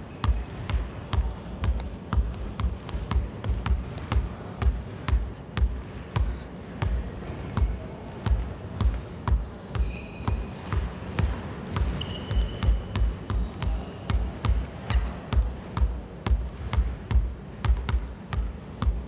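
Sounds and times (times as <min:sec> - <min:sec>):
basketball bouncing on hardwood: 0:00.2 - 0:19.0
shoe squeaks: 0:07.1 - 0:07.8, 0:09.3 - 0:10.6, 0:11.8 - 0:15.2.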